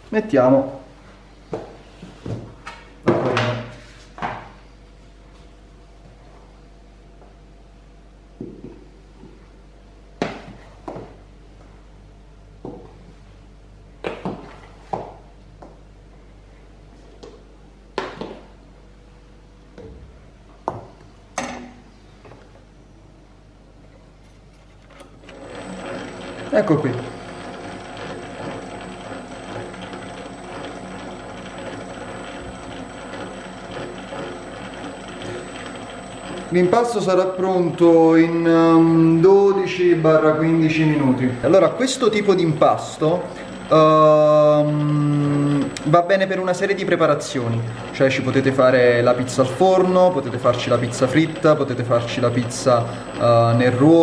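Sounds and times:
dough mixer humming: 25.1 - 54.0.

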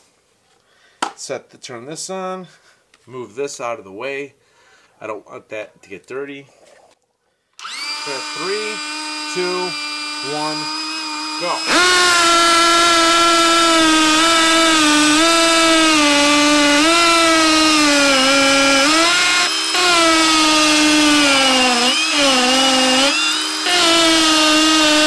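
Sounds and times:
hammer drill boring into concrete: 7.6 - 25.0.

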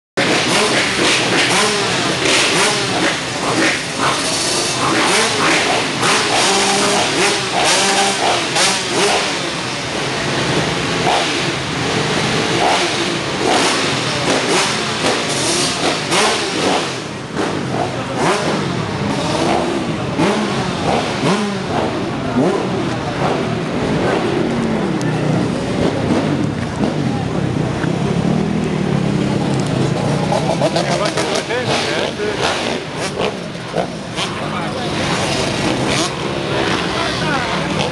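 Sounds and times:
motorcycle engines revving: 0.2 - 37.9.

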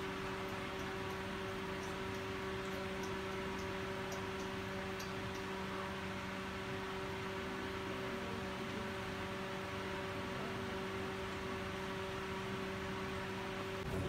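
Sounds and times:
faint ticks: 0.4 - 5.6.

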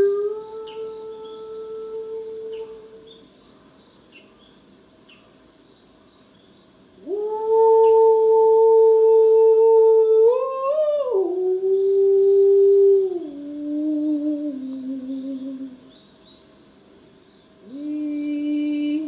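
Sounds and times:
woman singing long held notes: 0.0 - 3.3, 7.0 - 16.0, 17.6 - 19.0.

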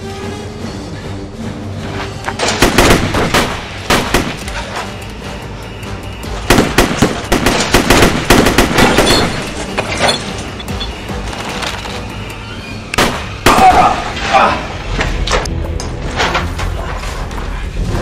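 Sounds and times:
background music: 0.0 - 18.0
rapid gunfire: 2.5 - 4.6, 6.5 - 9.5.

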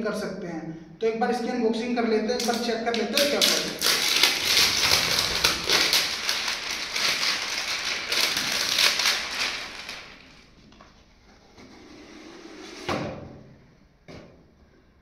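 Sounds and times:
cardboard packaging crackling: 2.4 - 10.7.

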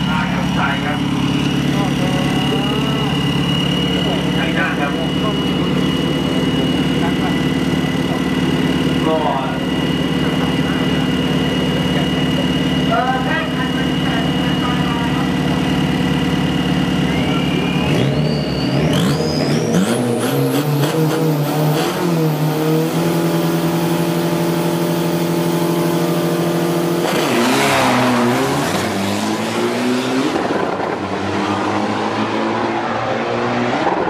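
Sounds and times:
truck engines revving: 0.0 - 34.0
turbo whistle: 16.8 - 19.9.

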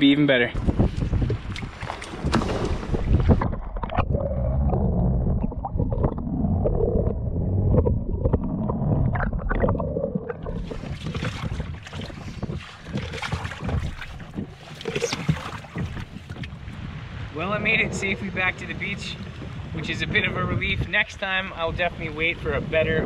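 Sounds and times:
wind noise: 0.4 - 23.0
water splashing: 1.0 - 16.9
underwater gurgling and bubbling: 2.3 - 16.4.

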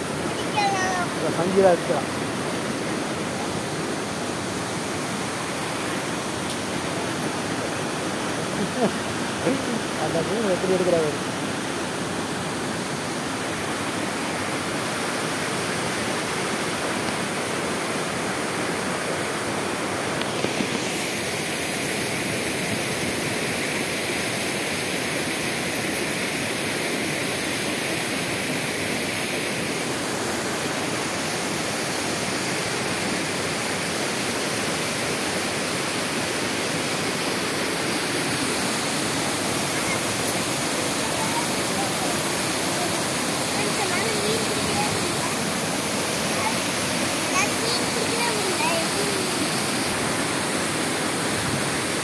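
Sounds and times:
water pouring over waterfall: 28.8 - 52.0.

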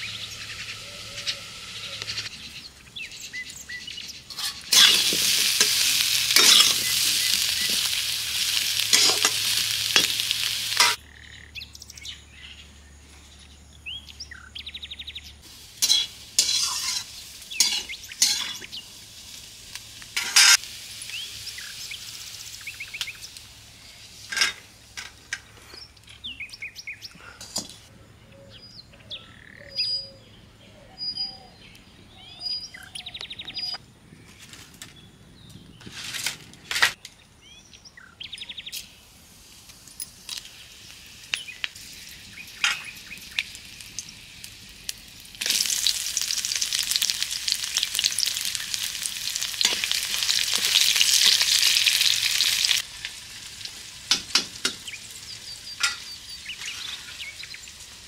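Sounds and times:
birds chirping: 0.0 - 19.2, 21.0 - 36.0, 37.2 - 39.1, 40.5 - 44.0, 54.3 - 58.0
vegetables sizzling in oil: 4.3 - 11.0, 15.4 - 25.0, 39.3 - 58.0.

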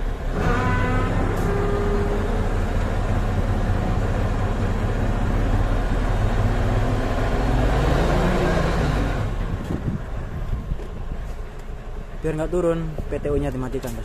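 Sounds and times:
diesel truck engine revving: 0.0 - 11.1.

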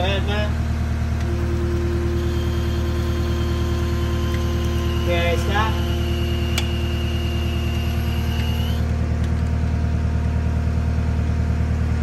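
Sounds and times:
diesel engine idling: 0.0 - 12.0
high thin whine: 1.3 - 8.8.

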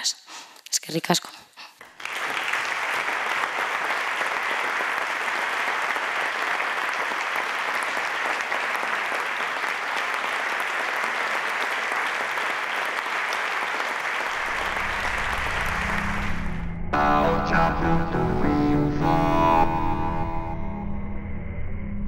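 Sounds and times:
audience applause: 1.8 - 16.6.

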